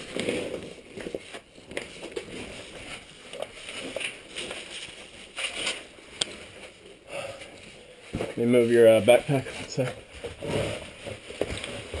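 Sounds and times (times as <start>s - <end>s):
clothing and gear scraping rock: 0.0s - 6.6s, 8.4s - 12.0s.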